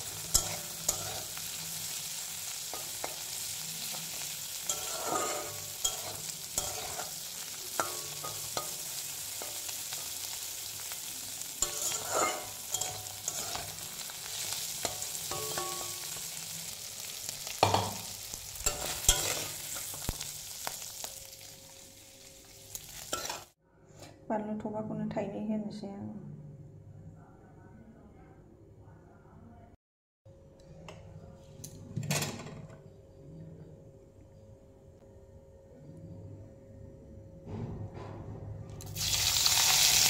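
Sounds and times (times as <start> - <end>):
metal spatula scraping a pan: 0.0 - 11.0, 11.6 - 16.4, 17.1 - 20.8, 22.7 - 23.6
fish sizzling in hot oil: 0.0 - 23.6, 38.8 - 40.0.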